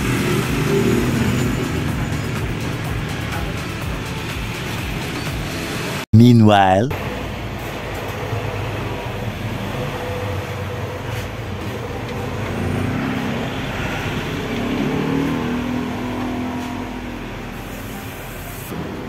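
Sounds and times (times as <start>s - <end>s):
vehicle engine humming: 0.0s - 6.0s, 7.0s - 19.0s.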